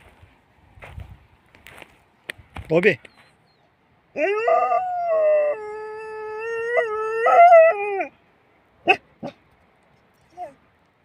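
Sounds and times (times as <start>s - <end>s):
dog howling: 4.2s - 8.1s.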